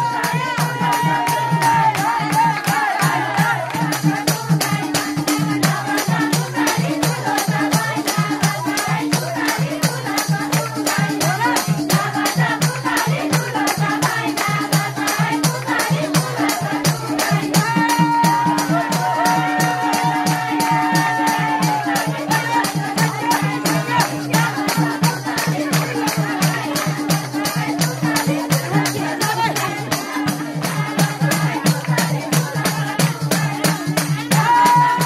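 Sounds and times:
women singing: 0.0s - 35.0s
hands clapping: 0.5s - 4.1s.

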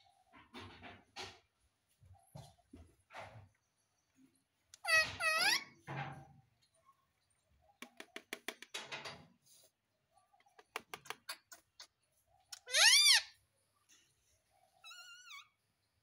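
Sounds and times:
parrot loud call: 12.6s - 13.4s.

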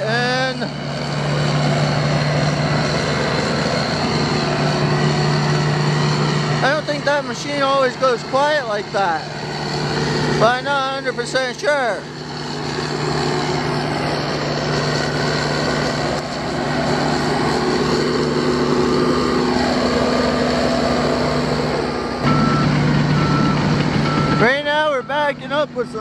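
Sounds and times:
diesel roller engine running: 0.0s - 26.0s
reversing alarm beeping: 22.2s - 26.0s.

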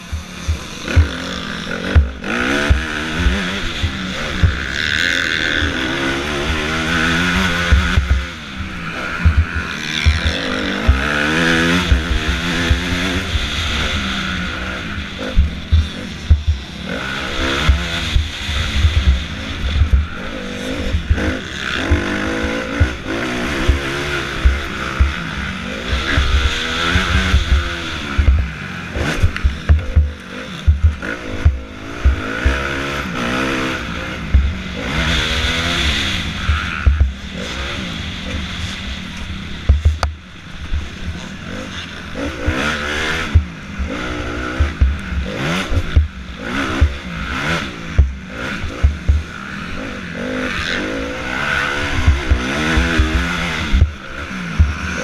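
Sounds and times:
motocross bike engine revving: 0.0s - 55.0s
bike knocking over bumps: 29.2s - 32.6s.

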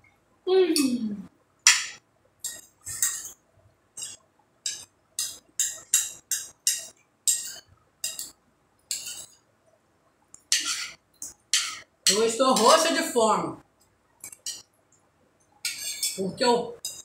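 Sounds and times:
forks clinking on plates: 4.0s - 9.4s, 10.5s - 12.8s, 15.6s - 16.2s.

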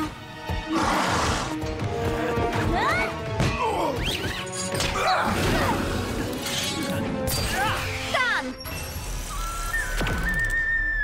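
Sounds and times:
dramatic music: 0.0s - 11.0s.

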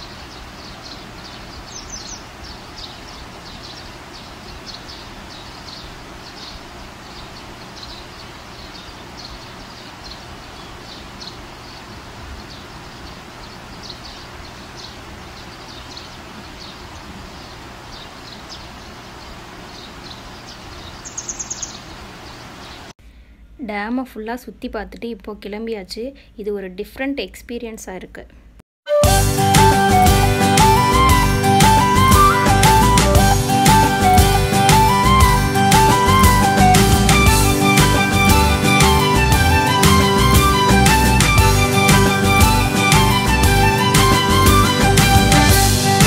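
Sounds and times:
bright high bird call: 0.0s - 16.9s, 19.8s - 21.9s
birds chirping: 0.0s - 22.9s, 29.3s - 46.0s.

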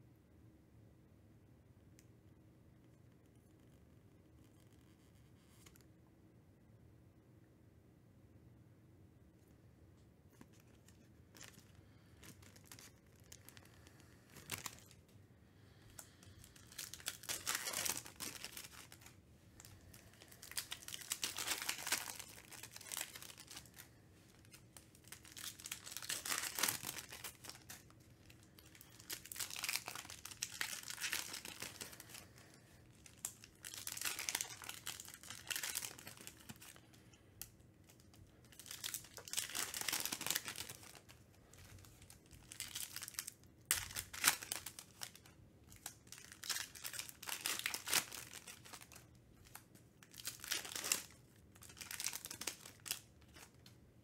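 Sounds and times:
foil wrappers crinkling and tearing: 10.5s - 15.0s, 15.9s - 53.7s.

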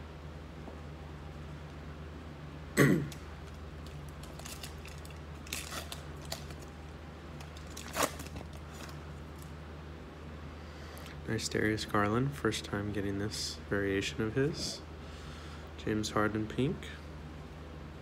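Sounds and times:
man coughing: 2.8s - 3.2s.

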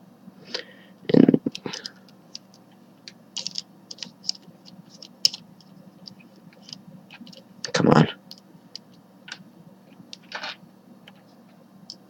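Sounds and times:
plastic puzzle pieces clicking: 3.4s - 4.4s.

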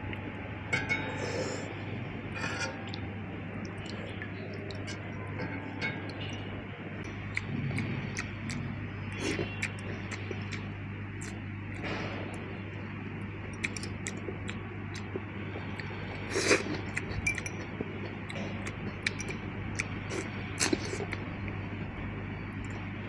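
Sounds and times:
steady low hum: 0.0s - 23.0s
chopsticks clinking against bowl: 16.5s - 19.9s.

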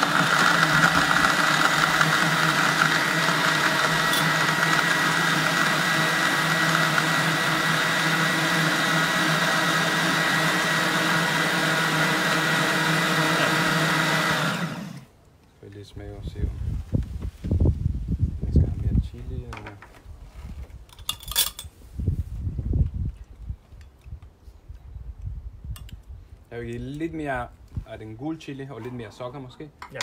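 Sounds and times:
blender running: 0.0s - 15.1s.

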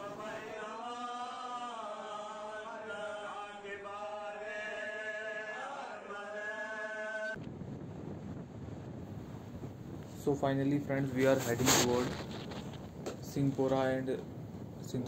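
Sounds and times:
men chanting: 0.0s - 7.4s
wind on microphone: 7.4s - 15.0s.

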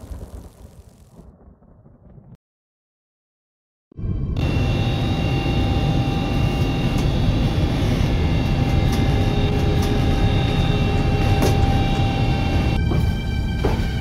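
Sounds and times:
low rumbling drone: 4.0s - 14.0s.

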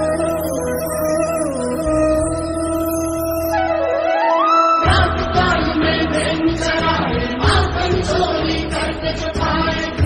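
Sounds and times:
music with beat and bass: 0.0s - 3.8s.

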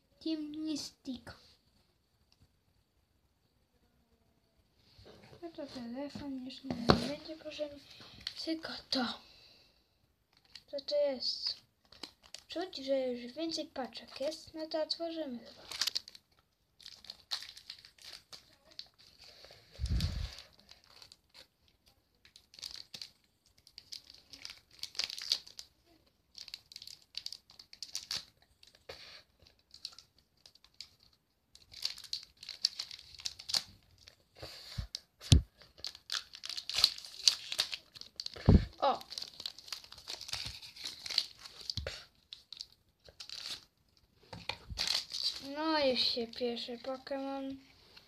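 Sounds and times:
foil pack crinkling and tearing: 11.5s - 12.9s, 15.5s - 34.2s, 34.9s - 43.8s, 44.5s - 45.8s.

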